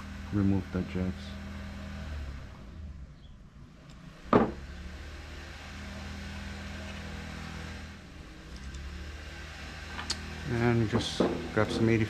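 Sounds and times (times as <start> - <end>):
hard objects knocking on workbench: 4.3 - 4.6, 11.2 - 11.9.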